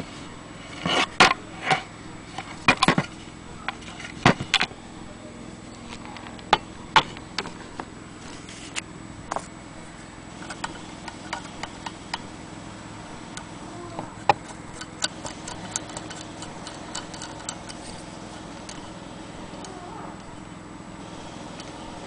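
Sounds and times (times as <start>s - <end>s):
steady low hum: 0.0s - 22.0s
hand-crank sewing machine clicking: 14.4s - 18.0s.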